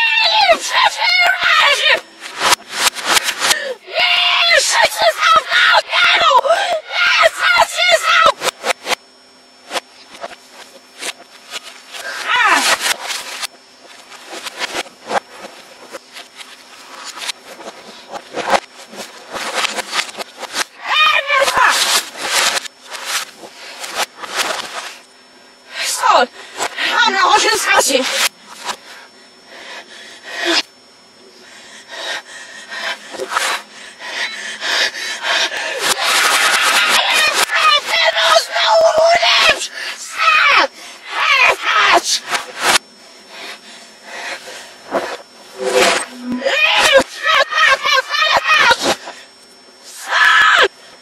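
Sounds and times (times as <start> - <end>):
vocal sound sliding down: 44.9 - 46.6.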